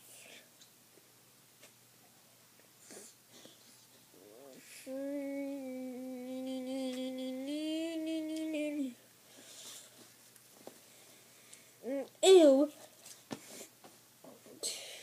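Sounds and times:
boy humming: 4.2s - 9.0s, 11.8s - 12.7s
soft handling noises: 9.3s - 11.7s, 12.7s - 14.5s.

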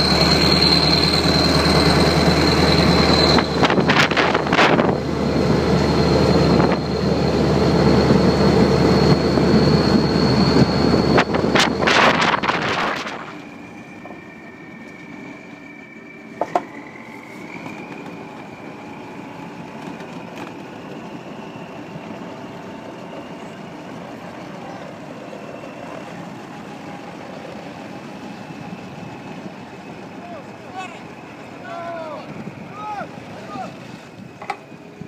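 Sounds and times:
engine running with high whine: 0.0s - 35.0s.

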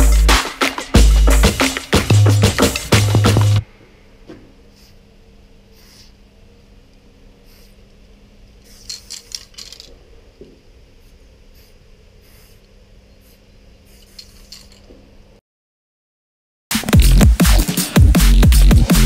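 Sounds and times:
faint hum: 3.6s - 15.4s
spray can hissing: 8.6s - 9.2s, 11.5s - 12.6s, 13.2s - 14.5s
metallic clicks and rattles: 8.8s - 10.0s.

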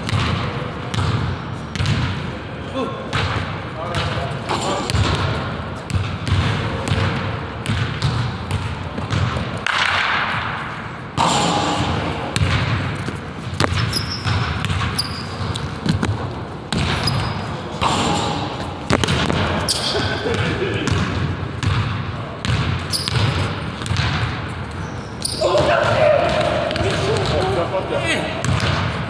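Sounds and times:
basketball bouncing on wooden floor: 0.0s - 2.2s, 3.1s - 10.2s, 11.9s - 18.2s, 18.8s - 24.6s, 28.4s - 29.0s
short high squeaks: 13.9s - 15.4s, 17.0s - 18.5s, 22.9s - 23.4s.

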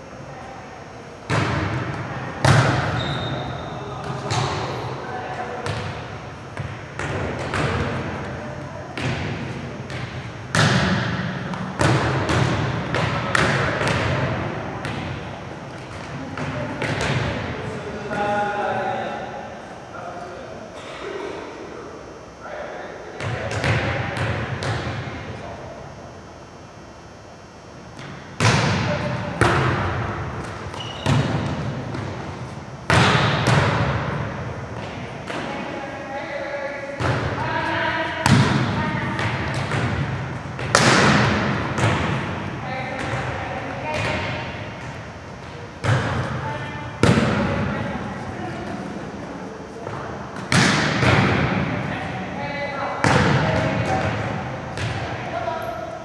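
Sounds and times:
volleyball smacks with echo: 1.2s - 3.3s, 4.0s - 4.8s, 5.6s - 8.4s, 9.0s - 17.5s, 23.2s - 25.1s, 28.0s - 35.6s, 37.0s - 47.8s, 49.8s - 51.9s, 53.0s - 55.3s
volleyball thuds on arms: 28.0s - 35.5s, 49.9s - 51.7s.

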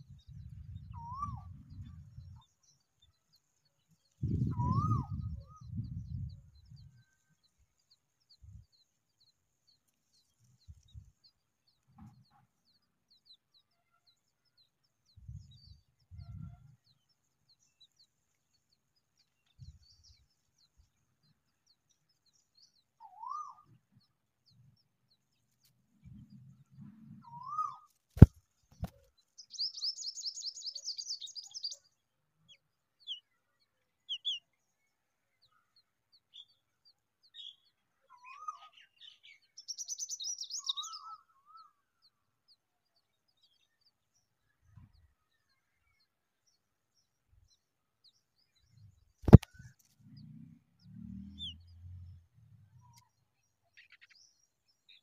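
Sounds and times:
sharp click: 49.2s - 49.6s.

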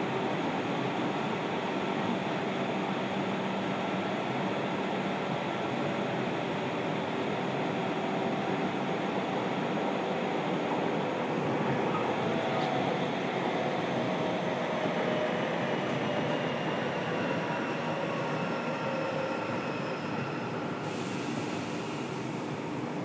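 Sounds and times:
hiss: 20.8s - 23.0s.

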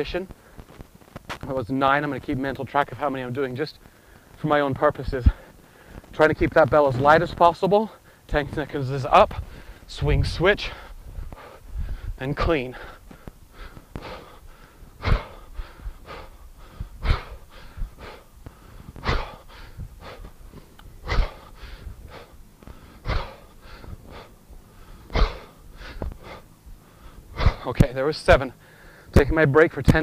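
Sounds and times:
man breathing hard: 3.8s - 4.4s, 5.2s - 6.1s, 7.9s - 8.3s, 9.3s - 9.9s, 10.6s - 27.7s, 28.6s - 29.2s.

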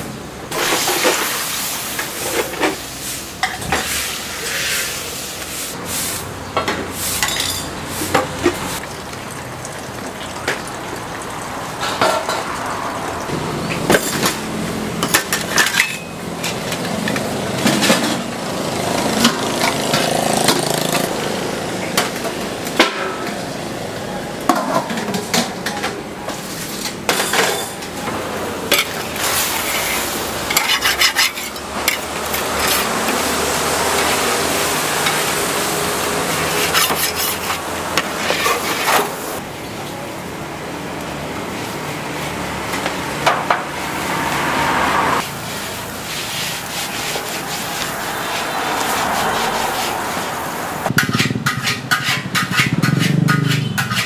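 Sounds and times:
metal spatula scraping a wok: 0.5s - 6.3s, 6.9s - 8.8s, 13.8s - 18.3s, 28.7s - 39.4s, 44.2s - 54.0s
noodles sizzling: 0.5s - 6.3s, 28.6s - 39.9s, 45.2s - 50.9s.

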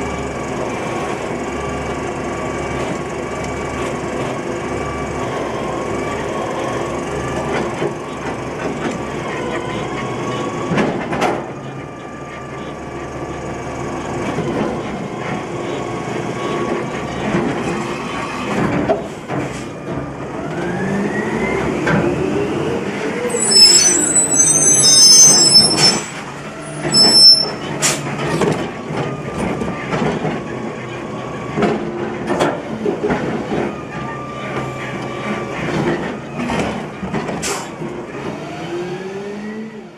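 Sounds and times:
garbage truck diesel engine: 0.0s - 39.9s
high-pitched squeals: 23.2s - 27.8s.

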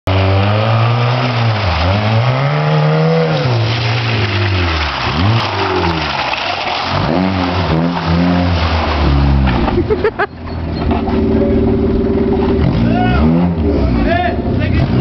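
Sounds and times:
car engine revving hard: 0.1s - 4.2s, 6.8s - 9.8s, 11.1s - 15.0s.

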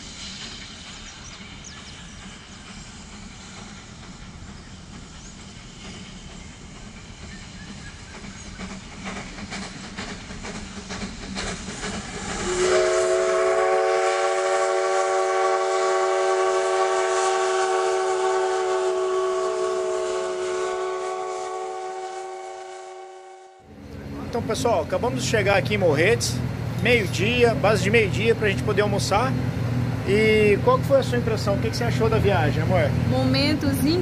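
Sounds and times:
train wheels clicking over rail joints: 0.0s - 13.4s
locomotive air horn: 12.5s - 23.7s.

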